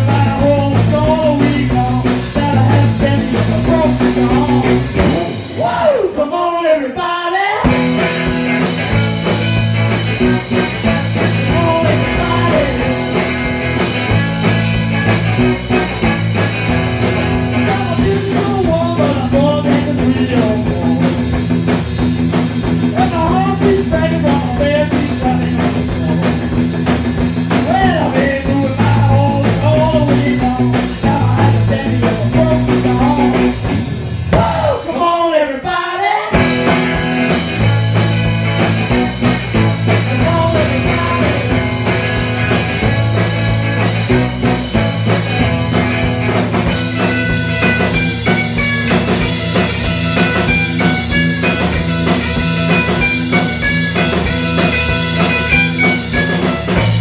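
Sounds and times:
rock band playing live: 0.0 - 57.0
guitar sliding down in pitch: 36.4 - 57.0.

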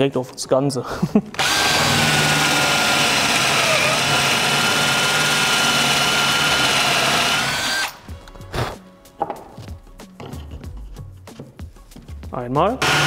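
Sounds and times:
power drill whining: 1.4 - 8.8, 12.8 - 13.0.

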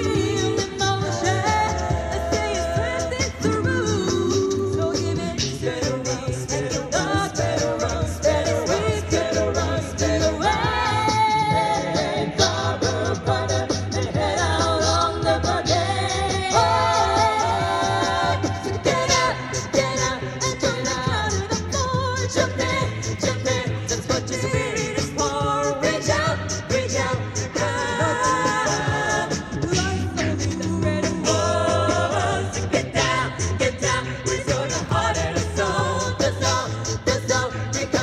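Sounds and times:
a cappella group singing: 0.0 - 38.0
vocal percussion beat: 0.0 - 38.0.

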